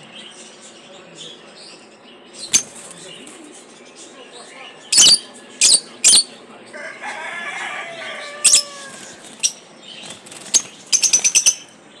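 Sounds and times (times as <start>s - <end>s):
lovebirds chirping shrilly: 1.8s - 3.2s, 4.8s - 6.4s, 7.6s - 12.0s.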